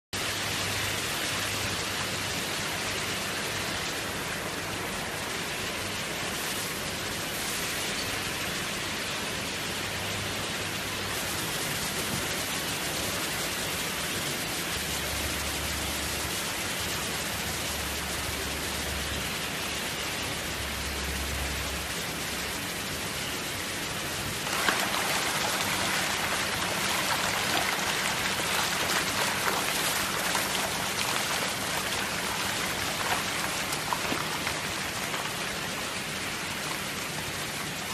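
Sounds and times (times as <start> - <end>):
water flowing into tanks: 24.1 - 37.9
fish thrashing and splashing: 24.4 - 35.7.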